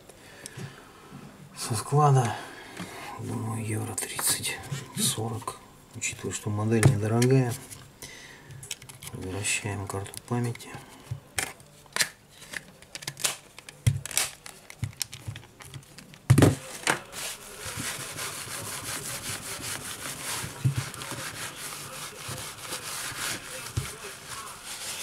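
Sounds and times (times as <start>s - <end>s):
cloth rubbing phone screen: 16.7s - 25.0s.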